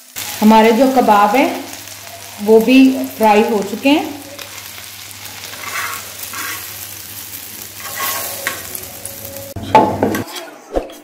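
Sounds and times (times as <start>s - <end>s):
food sizzling in hot oil: 0.0s - 10.0s
knife scraping a pan: 5.4s - 6.7s, 7.8s - 8.7s.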